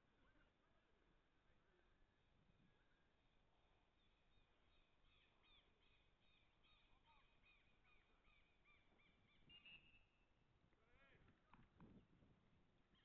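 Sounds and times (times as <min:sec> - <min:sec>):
faint bird chirps: 0:03.9 - 0:10.3.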